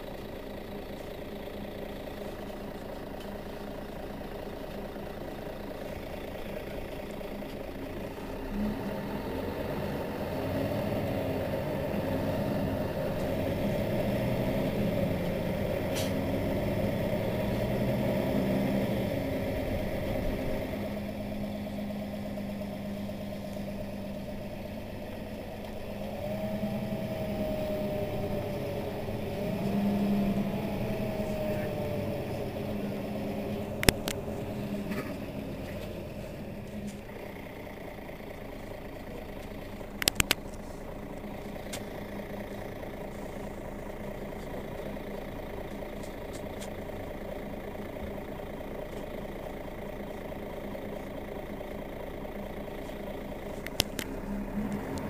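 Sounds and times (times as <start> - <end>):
bus engine idling: 0.0 - 55.0
rising engine whine: 0.0 - 55.0.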